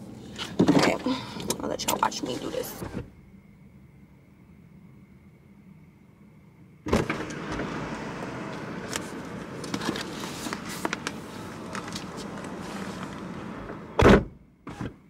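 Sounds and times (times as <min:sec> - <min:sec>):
car door opening: 0:06.9 - 0:15.0
street noise: 0:07.0 - 0:14.0
rustling: 0:08.9 - 0:13.6.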